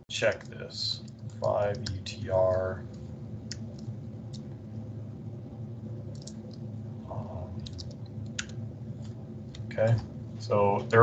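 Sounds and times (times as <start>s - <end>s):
low steady hum: 0.0s - 11.0s
keyboard keystrokes: 6.1s - 6.5s, 7.6s - 8.5s.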